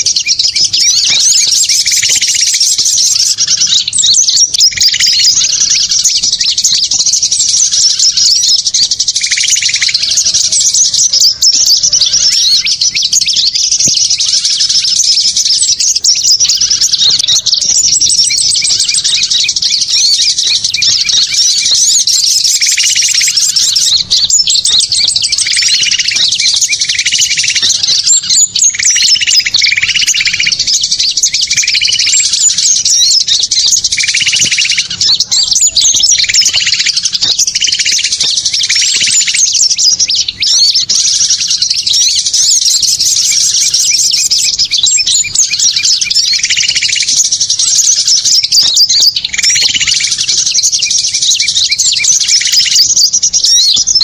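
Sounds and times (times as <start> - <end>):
low repeated bird call: 0.0 - 54.0
songbirds chirping and trilling: 0.0 - 54.0.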